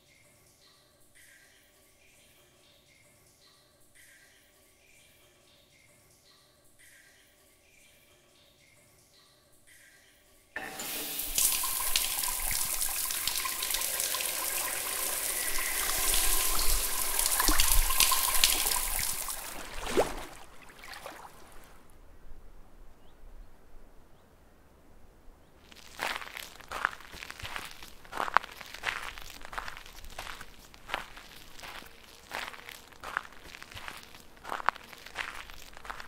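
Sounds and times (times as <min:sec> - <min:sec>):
shower spraying on tiled floor: 0:10.6 - 0:19.8.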